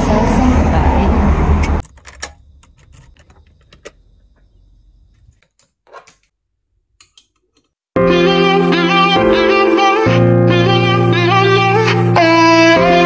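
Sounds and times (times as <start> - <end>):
keys jangling: 1.8 - 3.9
door latch clicks and knocks: 1.8 - 4.0
key turning in lock: 1.8 - 4.0.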